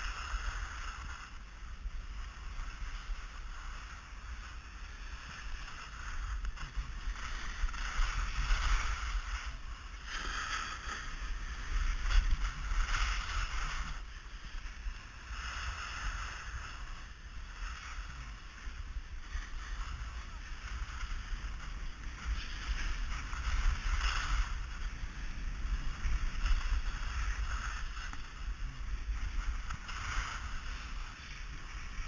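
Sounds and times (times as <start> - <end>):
skis scraping over snow: 0.0 - 32.0
wind rumble on microphone: 0.0 - 32.0.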